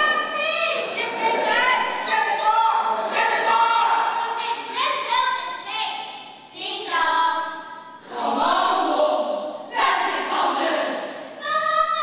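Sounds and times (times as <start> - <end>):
children singing in unison: 0.0 - 4.2, 7.8 - 12.0.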